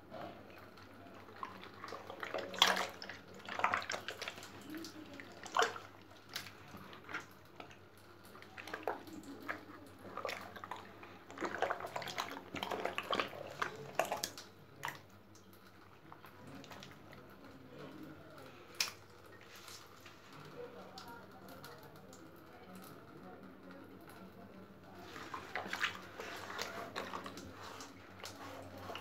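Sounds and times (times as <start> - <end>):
fish splashing in water tub: 0.1 - 22.3, 24.7 - 29.0.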